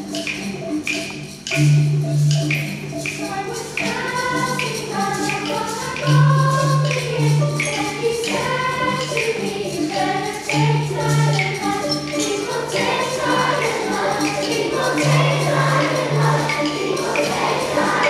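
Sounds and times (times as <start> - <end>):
children's choir singing: 0.0 - 18.0
xylophones playing: 0.0 - 18.0.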